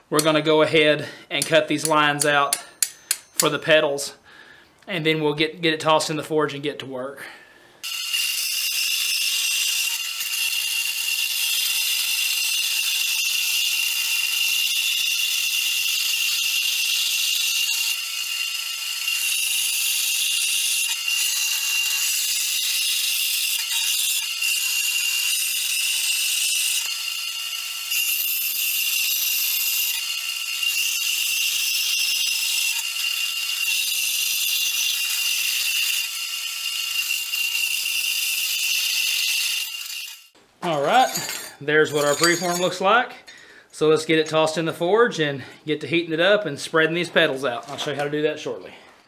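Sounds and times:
bandsaw cutting steel: 7.8 - 42.9.

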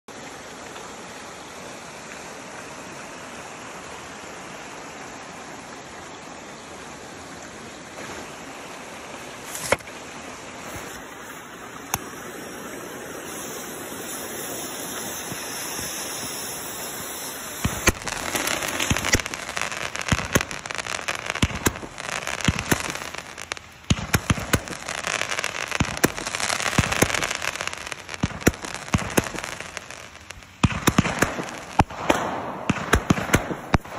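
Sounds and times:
steady hiss: 0.1 - 33.9
firework pops and bursts: 9.4 - 10.0, 10.6 - 33.9.

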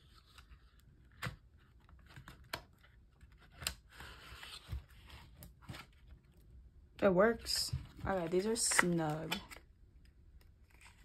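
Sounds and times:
plastic cards clicking and tapping: 8.5 - 9.7.

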